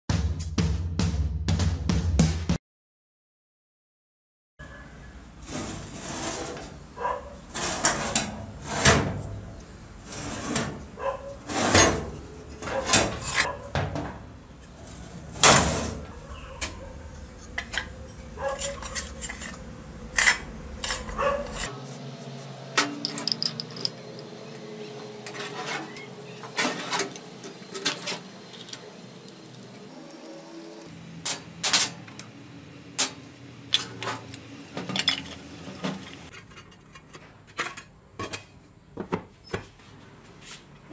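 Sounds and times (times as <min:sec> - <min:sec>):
metal clanks and rattles: 0:10.3 - 0:21.7, 0:22.8 - 0:24.3, 0:33.0 - 0:38.6.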